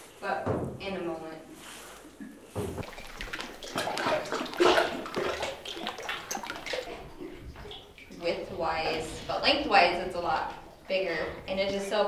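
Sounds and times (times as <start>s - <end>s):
water sloshing around kayak: 1.5s - 12.0s.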